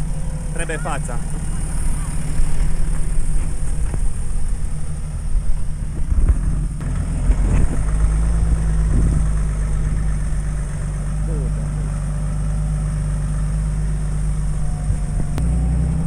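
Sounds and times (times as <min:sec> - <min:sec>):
truck engine running at low revs: 0:00.0 - 0:16.0.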